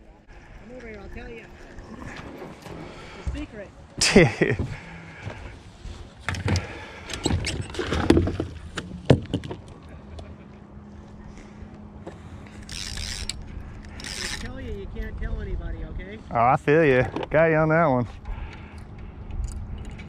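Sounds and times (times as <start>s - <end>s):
electric trolling motor hum: 0.0s - 7.2s, 9.7s - 15.1s
fishing gear knocking and clattering: 6.2s - 9.8s, 12.5s - 14.5s.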